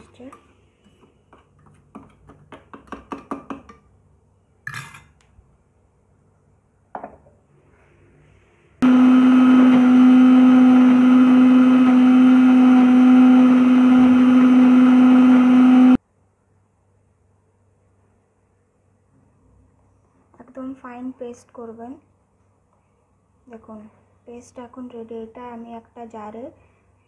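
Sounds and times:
mixer grinder running: 8.8 - 16.0.

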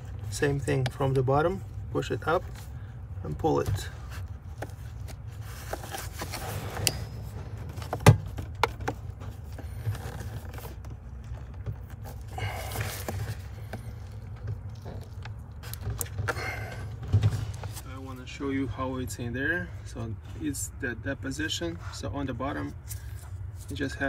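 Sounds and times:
glove and cables rustling: 0.0 - 18.5
steady low hum: 0.0 - 24.0.

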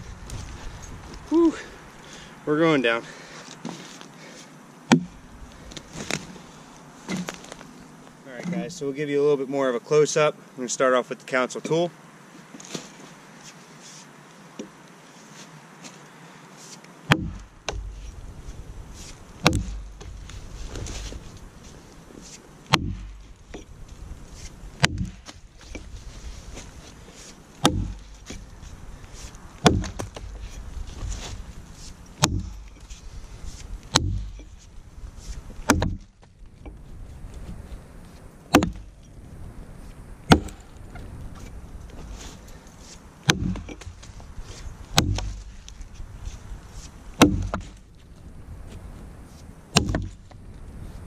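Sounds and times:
axe chopping into log: 4.9 - 5.2, 17.1 - 18.1, 19.4 - 21.2, 22.7 - 23.3, 24.8 - 25.9, 27.6 - 28.5, 29.6 - 31.3, 32.2 - 32.8, 33.9 - 34.5, 35.6 - 36.2, 38.5 - 38.9, 40.3 - 40.7, 43.3 - 44.1, 44.9 - 45.8, 47.2 - 47.8, 49.8 - 50.3.

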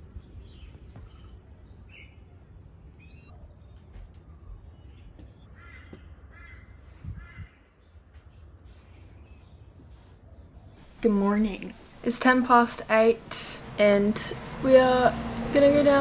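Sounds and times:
crow cawing: 5.6 - 7.5.

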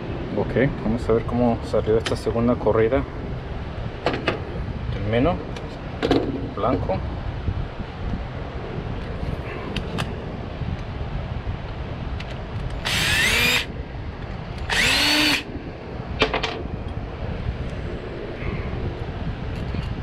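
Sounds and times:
cordless drill whining: 12.8 - 13.7, 14.6 - 15.5.

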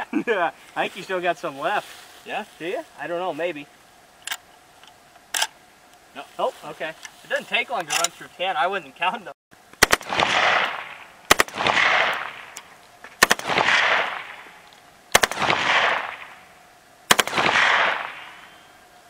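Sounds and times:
gunshot echo: 9.8 - 12.6, 13.2 - 16.5, 17.1 - 18.7
rifle firing bursts: 9.8 - 16.5, 17.1 - 18.7.

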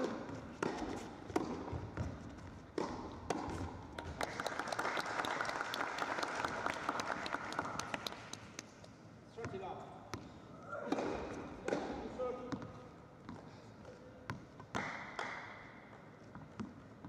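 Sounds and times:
tennis ball strikes: 0.0 - 2.0, 2.7 - 3.6, 10.9 - 12.1
light applause from crowd: 4.0 - 8.6.

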